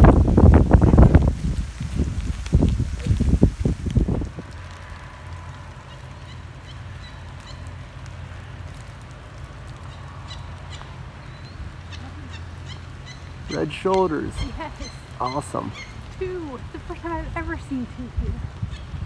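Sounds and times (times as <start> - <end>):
faint bird calls: 9.8 - 17.0.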